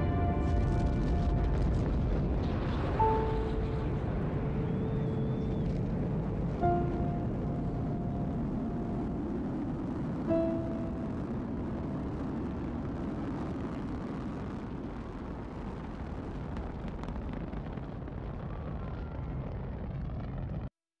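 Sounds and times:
rocket launch roar: 0.0s - 20.7s.

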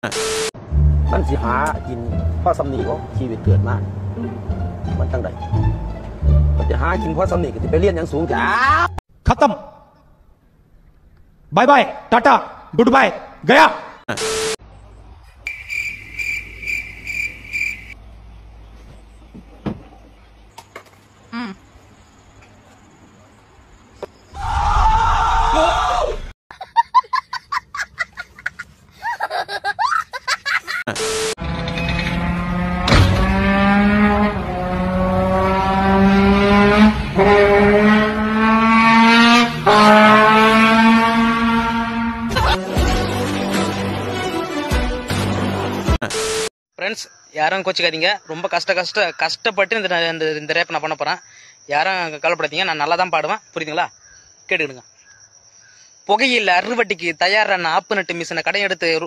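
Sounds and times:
high cricket-like chirps: 15.2s - 18.5s, 20.7s - 24.9s, 46.8s - 59.0s
trombone sliding upward: 31.0s - 43.2s.

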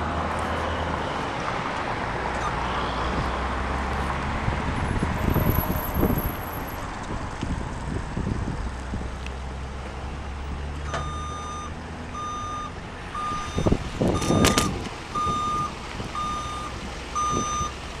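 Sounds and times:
truck engine running: 0.0s - 18.0s
truck backup alarm beeping: 10.8s - 18.0s.

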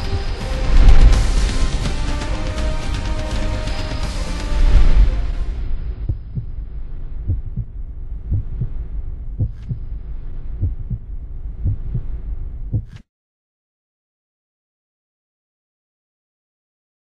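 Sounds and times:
low drone: 0.0s - 13.0s
heartbeat thumps: 6.0s - 6.6s, 7.2s - 9.9s, 10.6s - 13.0s.

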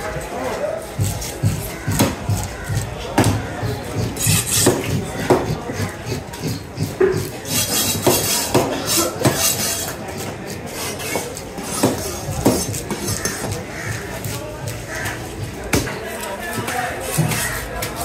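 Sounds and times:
market chatter: 0.0s - 18.0s
knife chopping on wooden table: 4.0s - 9.8s, 11.0s - 13.1s.

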